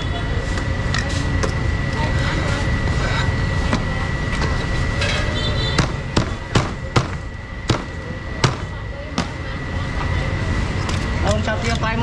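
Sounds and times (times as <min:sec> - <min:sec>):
thin high whine: 0:00.0 - 0:06.5
market din: 0:00.0 - 0:12.0
cleaver chopping meat: 0:05.8 - 0:09.3.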